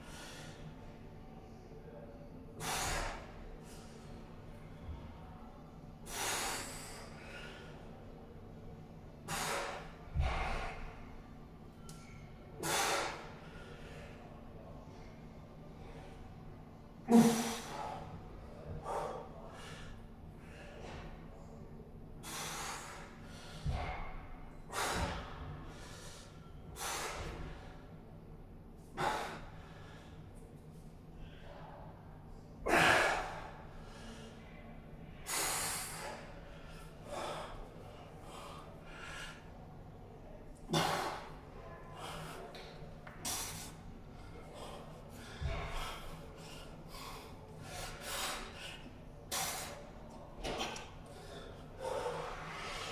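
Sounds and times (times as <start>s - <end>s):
man breathing hard: 2.6s - 4.0s, 9.2s - 11.0s, 12.1s - 14.4s, 22.2s - 28.0s, 28.8s - 31.8s, 35.2s - 39.6s, 40.6s - 49.9s, 50.8s - 52.9s.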